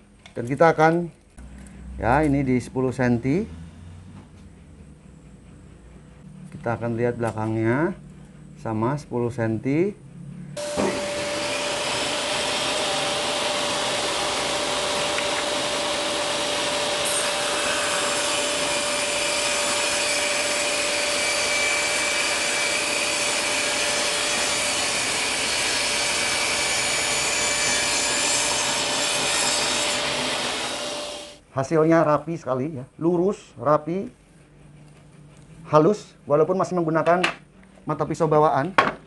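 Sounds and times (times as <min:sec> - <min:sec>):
saw blade rasping through wood: 0:10.6 - 0:31.4
table saw whine: 0:10.6 - 0:31.4.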